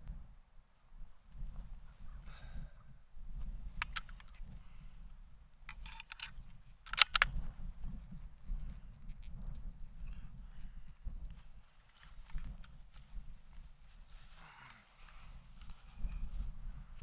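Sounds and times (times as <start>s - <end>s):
wind buffeting microphone: 1.0s - 11.6s, 15.2s - 17.0s
rifle bolt metallic clicks: 3.8s - 4.4s, 5.7s - 7.4s.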